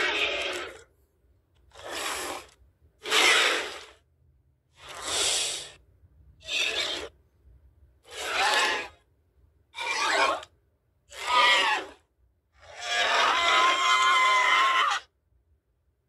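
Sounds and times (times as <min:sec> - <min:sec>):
monster snarls and growls: 0:00.0 - 0:00.8, 0:01.7 - 0:04.0, 0:04.8 - 0:05.8, 0:06.4 - 0:07.1, 0:08.1 - 0:09.0, 0:11.1 - 0:12.0, 0:12.6 - 0:15.1.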